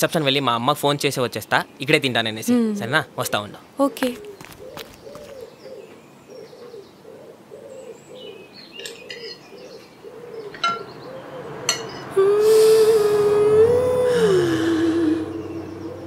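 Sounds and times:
small birds chirping: 0.1 - 12.2, 14.7 - 16.0
dove cooing: 3.2 - 16.0.

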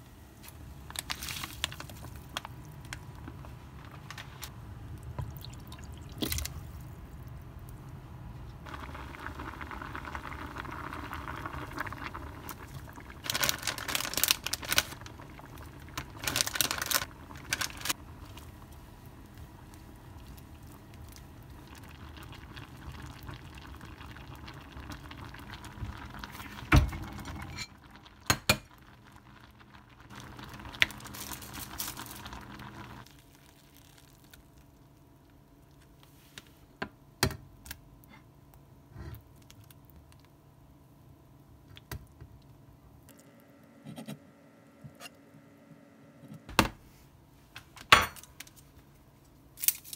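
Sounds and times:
pot simmering and bubbling: 0.7 - 36.0.

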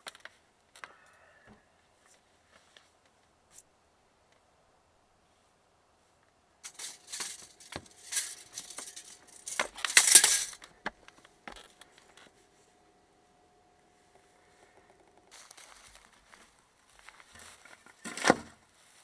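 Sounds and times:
faint steady hum: 0.0 - 19.0
paper rustling and scraping on metal: 6.6 - 10.6.

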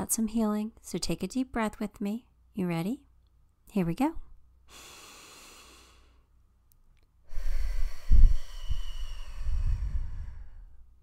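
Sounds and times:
woman breathing deeply: 4.7 - 6.3, 7.2 - 11.0.

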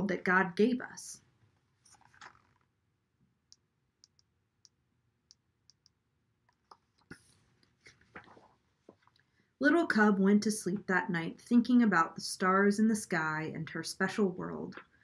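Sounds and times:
book pages rustling: 1.8 - 2.7, 6.7 - 9.2
faint small clicks: 3.5 - 7.7.

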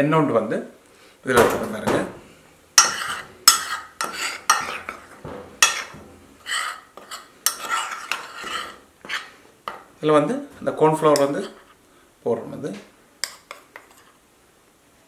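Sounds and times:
flour scraped in ceramic dish: 2.8 - 9.4.

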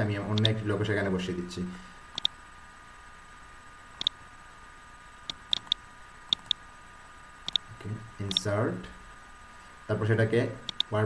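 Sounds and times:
computer mouse clicks: 0.4 - 0.6, 2.2 - 2.4, 5.3 - 6.6, 10.7 - 10.9.

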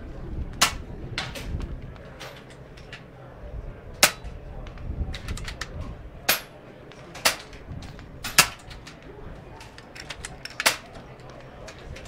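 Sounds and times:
air rifle shots: 8.3 - 8.7.

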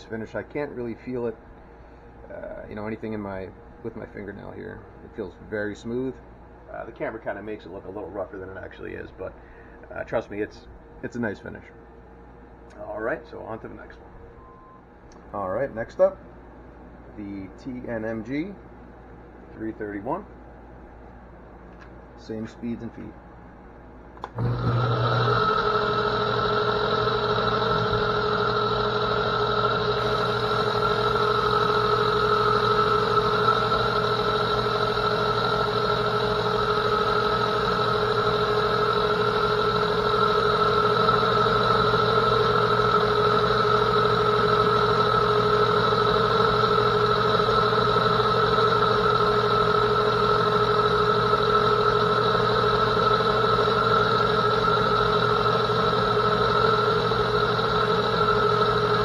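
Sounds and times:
metal lathe droning and whining: 24.4 - 59.0.

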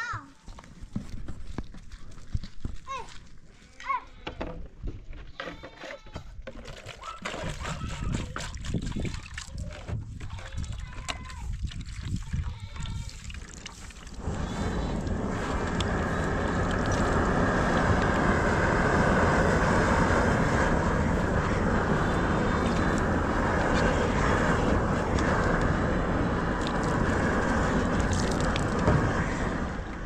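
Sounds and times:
gas torch roaring: 14.1 - 30.0.

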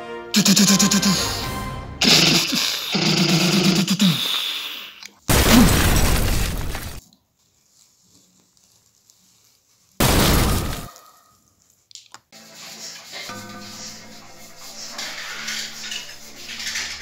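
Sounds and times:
man shouting: 0.4 - 1.5
loud explosion: 5.3 - 7.0, 10.0 - 10.9.

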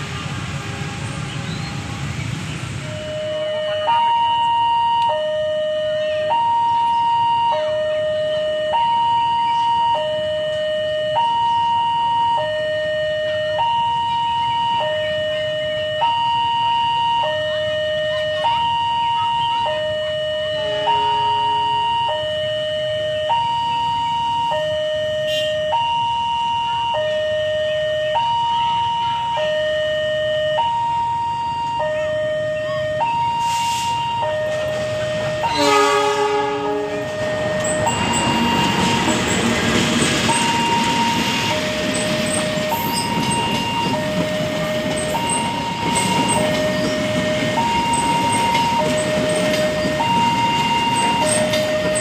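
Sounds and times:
level crossing two-tone alarm: 2.9 - 52.0.

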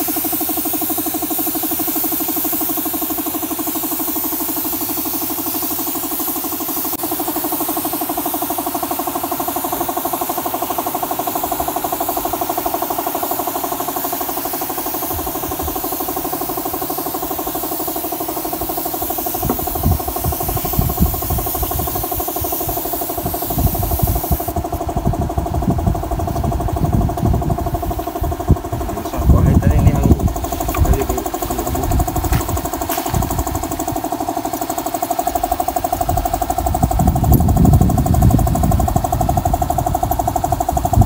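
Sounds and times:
air compressor pulsing: 0.0 - 41.0
spray gun hissing: 0.0 - 41.0
low thumps: 31.8 - 33.6.

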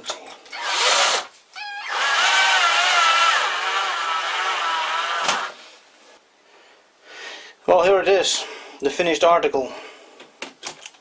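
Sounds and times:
screw squealing into nylon: 0.5 - 5.6.

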